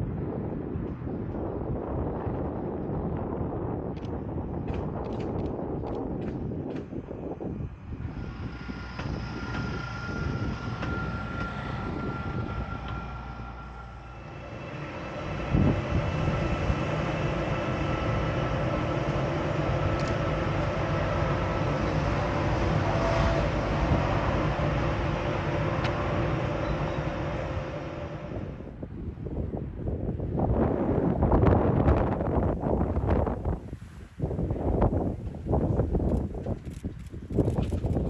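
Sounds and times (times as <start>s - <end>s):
electric locomotive running on track: 1.4s - 29.6s
standing locomotive humming: 5.9s - 29.0s.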